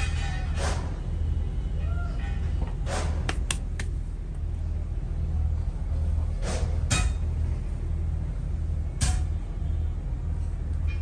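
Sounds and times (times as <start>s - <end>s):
sharp knocks: 3.1s - 4.0s.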